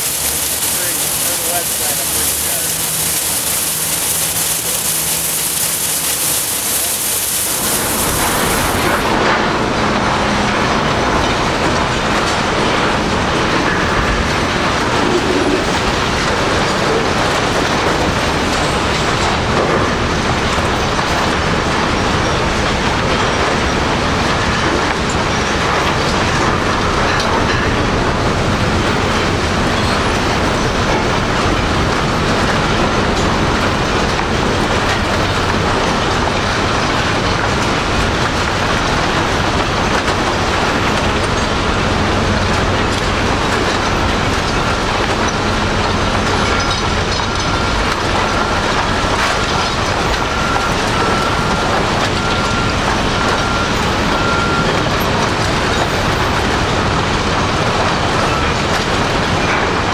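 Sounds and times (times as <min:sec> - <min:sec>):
scrap metal shredder grinding: 0:00.0 - 0:09.5.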